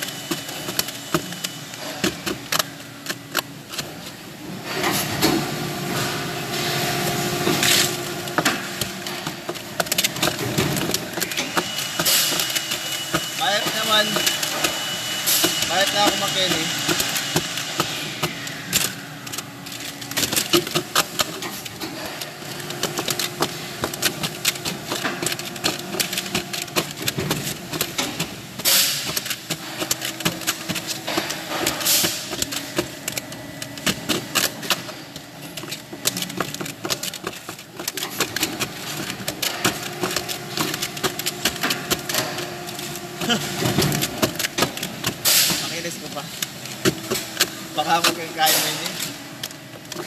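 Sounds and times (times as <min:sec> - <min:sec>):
clicking and clattering of parts: 0:00.0 - 0:50.0.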